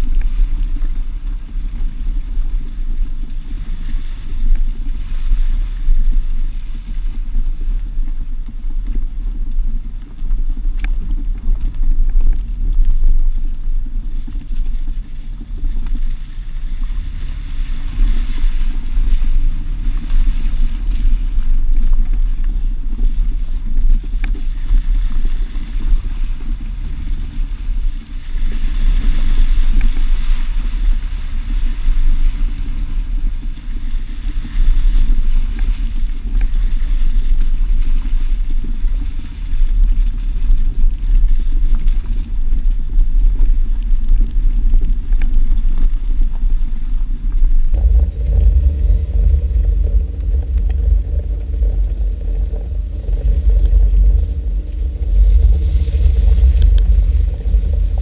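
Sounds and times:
wind on microphone: 0:00.0 - 0:58.0
vehicle engine rumble: 0:47.7 - 0:58.0
rushing hiss: 0:47.8 - 0:58.0.

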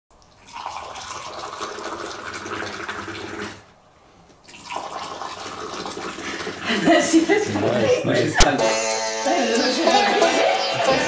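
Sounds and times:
tea pouring into glasses: 0:00.2 - 0:03.7, 0:04.4 - 0:07.7.

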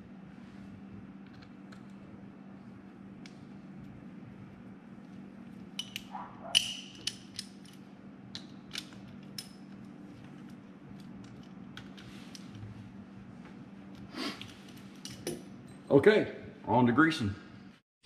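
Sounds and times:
socket ratchet clicking: 0:05.8 - 0:07.8.

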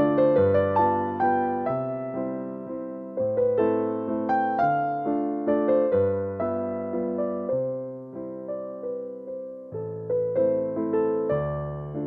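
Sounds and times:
electric piano melody: 0:00.0 - 0:12.0.

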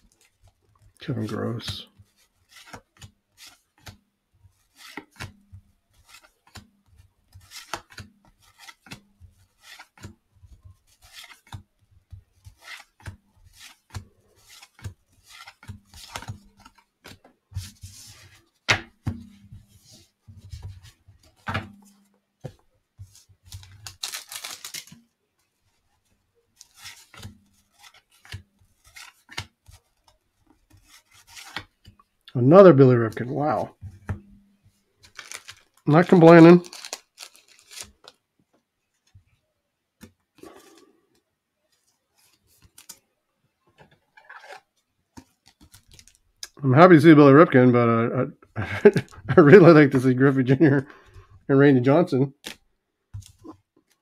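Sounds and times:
cards being flipped by hand: 0:00.0 - 0:32.0, 0:35.0 - 0:38.2, 0:41.7 - 0:43.0, 0:43.7 - 0:46.2, 0:52.4 - 0:54.0.

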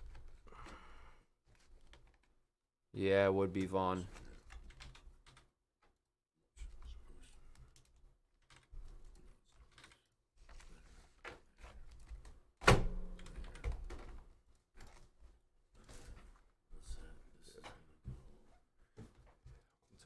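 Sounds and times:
typing on computer keyboard: 0:04.1 - 0:05.5.

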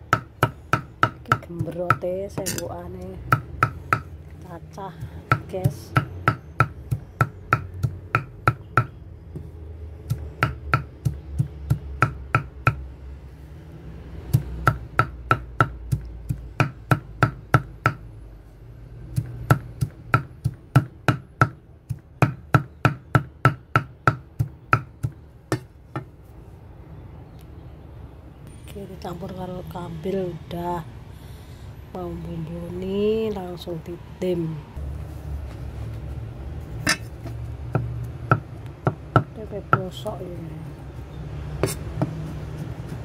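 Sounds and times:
cleaver chopping leaves on wood: 0:04.9 - 0:12.8, 0:14.2 - 0:18.0, 0:19.1 - 0:26.1, 0:36.8 - 0:43.0.

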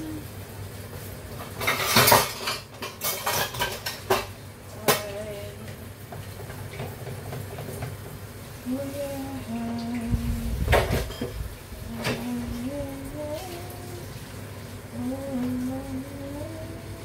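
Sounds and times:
dishes and cutlery clattering: 0:01.6 - 0:05.1, 0:10.7 - 0:11.4.

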